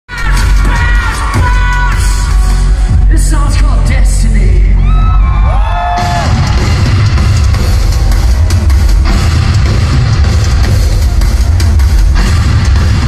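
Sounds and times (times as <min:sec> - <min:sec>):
heavy bass drone: 0:00.1 - 0:13.0
rock band with drums and distorted guitars: 0:05.0 - 0:13.0.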